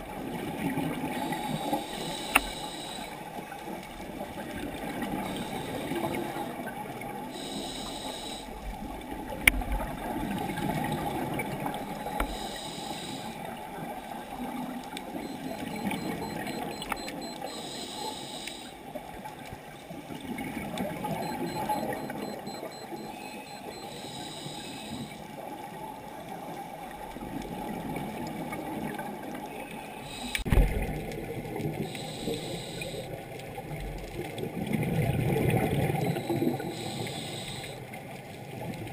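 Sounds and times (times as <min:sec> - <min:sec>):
low rush of water underwater: 0:00.0 - 0:23.9, 0:25.0 - 0:38.9
regulator bubbles gurgling: 0:00.0 - 0:24.1, 0:24.9 - 0:38.9
click: 0:02.0 - 0:03.1, 0:09.4 - 0:09.6, 0:12.1 - 0:12.6, 0:14.9 - 0:17.6, 0:30.2 - 0:30.7.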